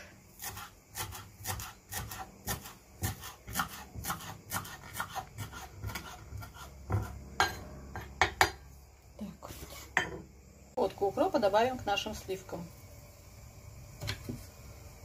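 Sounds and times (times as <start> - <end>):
knife chopping on wooden board: 0.4 - 7.2.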